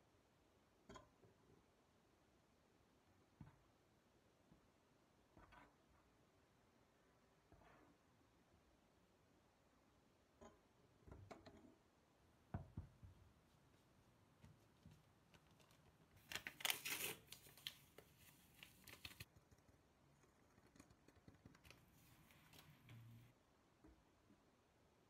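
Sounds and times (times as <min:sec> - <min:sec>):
crackly rustling and scraping: 0:13.4 - 0:19.4.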